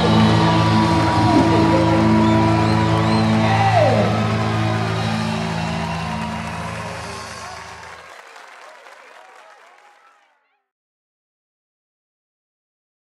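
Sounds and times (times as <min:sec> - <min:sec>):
guitar sliding down in pitch: 0:00.0 - 0:07.3
rock band holding a chord: 0:00.0 - 0:08.2.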